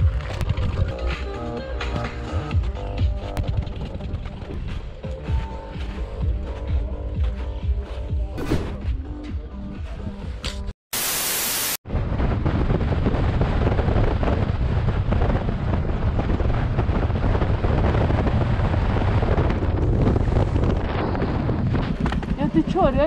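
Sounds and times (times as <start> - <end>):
static hiss: 10.9 - 11.8
steady low rumble: 11.9 - 22.7
wind buffeting microphone: 11.9 - 23.0.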